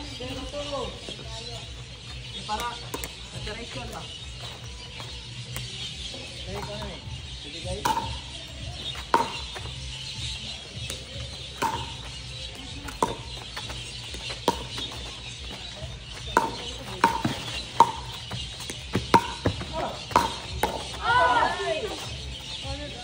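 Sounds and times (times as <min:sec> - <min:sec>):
paddles hitting plastic ball: 0:10.9 - 0:12.1.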